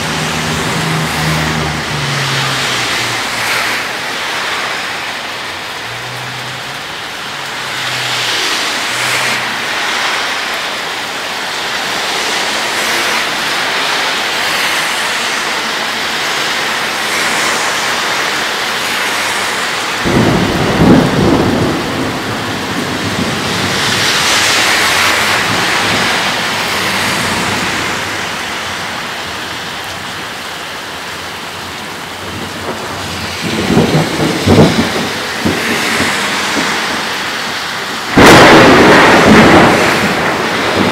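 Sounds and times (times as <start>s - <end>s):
thunder claps: 0.0s - 4.4s, 19.0s - 28.4s, 32.2s - 40.9s
steady rain: 0.0s - 40.9s.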